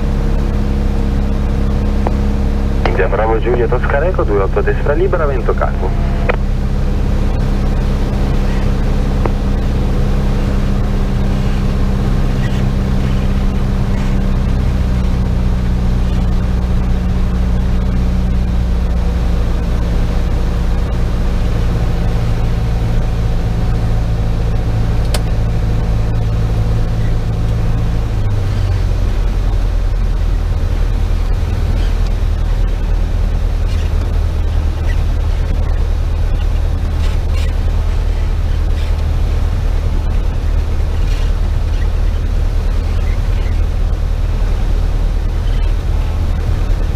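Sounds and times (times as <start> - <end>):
aircraft engine and propeller droning: 0.0 - 46.9.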